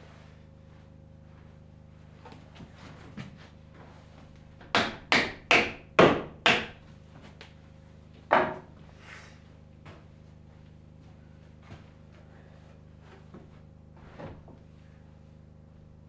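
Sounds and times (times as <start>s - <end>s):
hammer striking wooden pegs: 4.6s - 6.8s.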